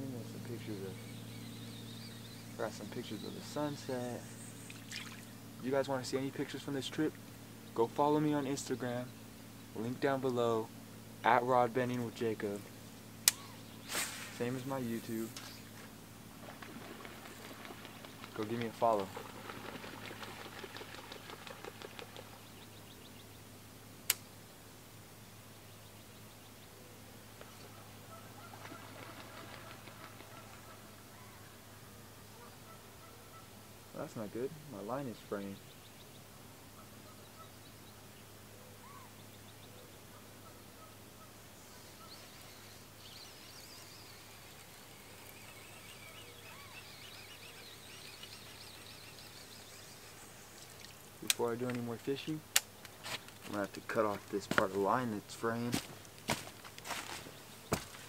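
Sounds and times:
faint warbling birdsong: 0.0 - 58.0
low background hum: 0.0 - 58.0
sharp click: 13.2 - 13.5, 24.1 - 24.3.

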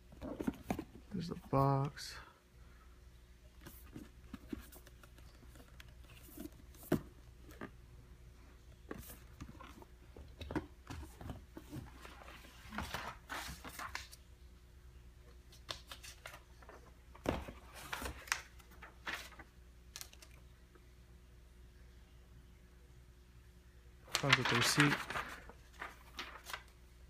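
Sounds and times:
handling cardboard shoe box: 0.0 - 2.0, 3.6 - 7.8.

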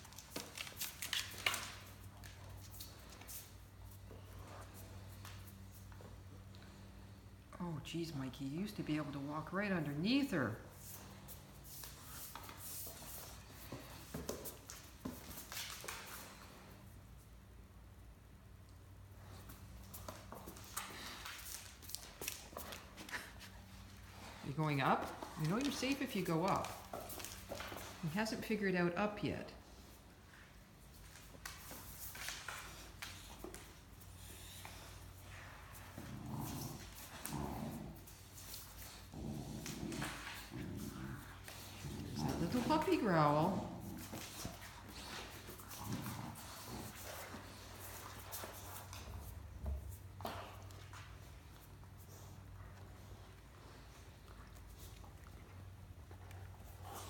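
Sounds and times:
dogs scuffling on stone floor: 0.0 - 7.2, 8.1 - 16.9, 19.2 - 28.7, 29.6 - 52.5
puppy play-growling: 19.2 - 28.6, 29.6 - 49.5, 50.1 - 57.0
puppy grunts: 35.4 - 38.2, 38.8 - 44.7.

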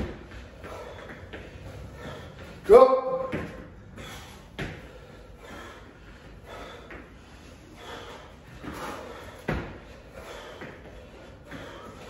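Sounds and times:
person breathing hard: 0.0 - 2.7, 3.6 - 12.0
footfalls on a rubber mat: 8.5 - 10.8.

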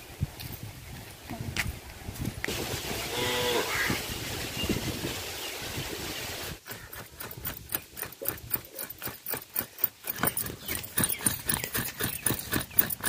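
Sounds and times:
outdoor ambience: 0.0 - 13.0
coconut grating on scraper: 6.6 - 13.0.

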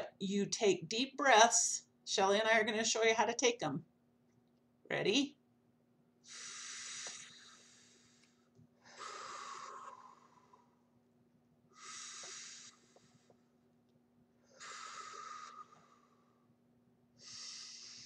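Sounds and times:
deep breaths: 6.2 - 10.9, 11.7 - 13.5, 14.4 - 16.6, 17.2 - 18.0.

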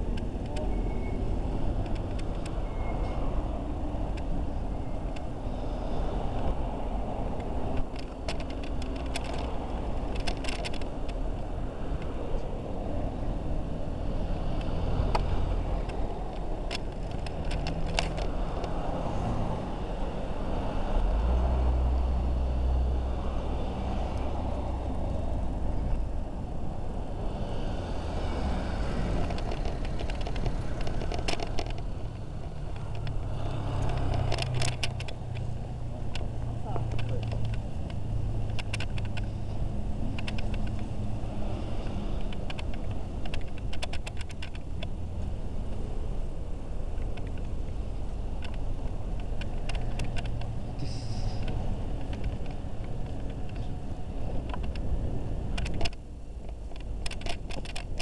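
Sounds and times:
cars passing: 0.0 - 58.0
heavy vehicle rumble: 0.0 - 58.0
sharp clicks: 40.0 - 45.3.

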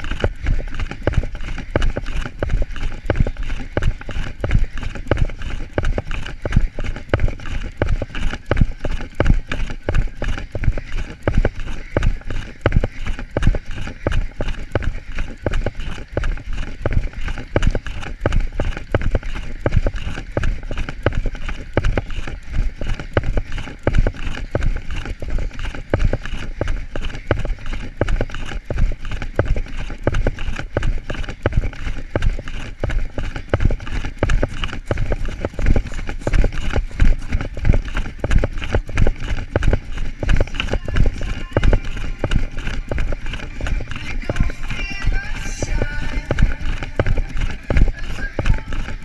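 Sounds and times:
camera knocking and jostling: 0.0 - 49.0
running footsteps pounding: 0.0 - 49.0.

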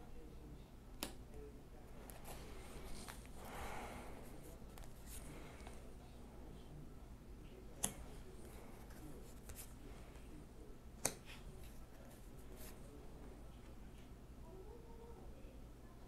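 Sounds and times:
cards rustling: 2.0 - 3.6, 4.2 - 6.0, 7.8 - 10.3.

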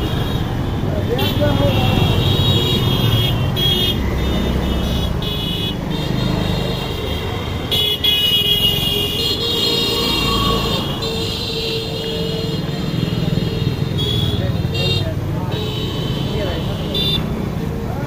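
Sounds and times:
horn honks: 1.1 - 17.4
motorcycles riding past: 8.7 - 18.0.

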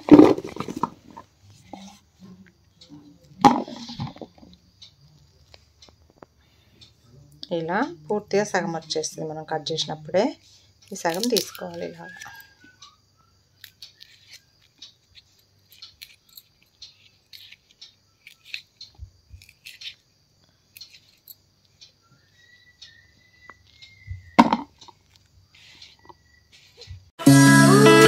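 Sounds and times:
clicks and rustles of cutting vegetables: 13.6 - 20.1.

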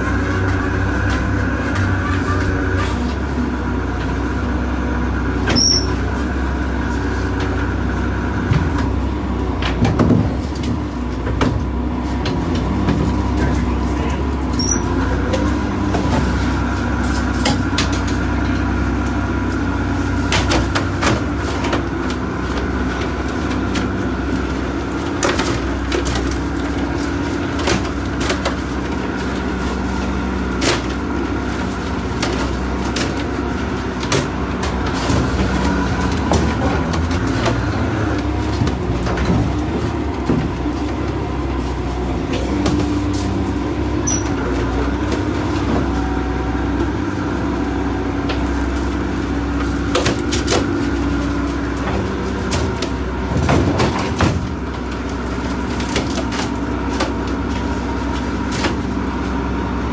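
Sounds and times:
boat engine running: 0.0 - 59.9
knocks and clatter on deck: 9.6 - 13.2.

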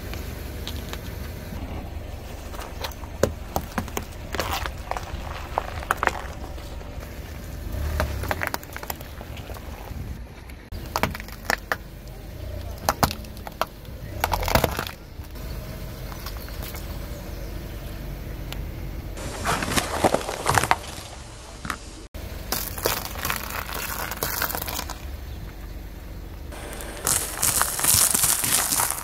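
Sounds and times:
low car rumble: 0.0 - 29.0
food crushed under car tyre: 2.4 - 10.0, 10.7 - 11.8, 12.5 - 15.4, 19.2 - 21.8, 22.4 - 25.1, 26.6 - 29.0.

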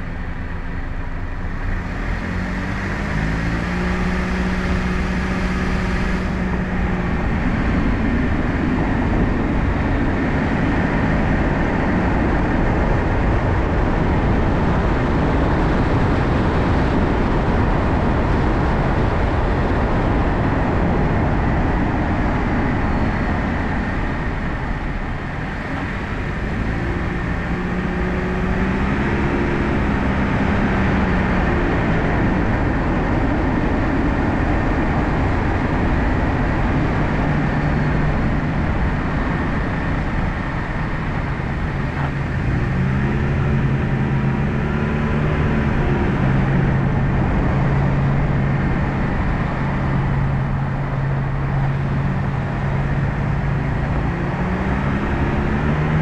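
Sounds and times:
car engine hum: 0.0 - 56.0
road and tyre noise: 0.0 - 56.0.

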